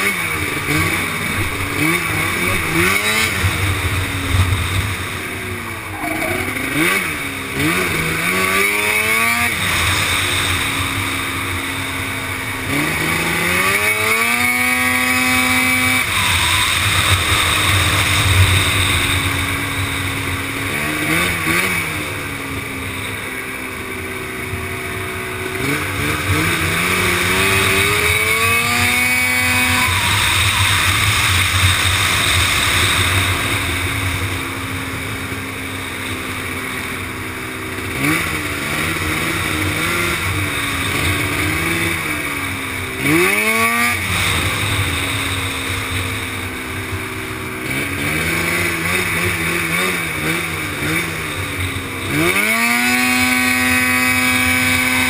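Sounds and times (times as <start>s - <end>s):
quad engine revving: 0.0s - 55.0s
rush of noise: 1.1s - 8.8s.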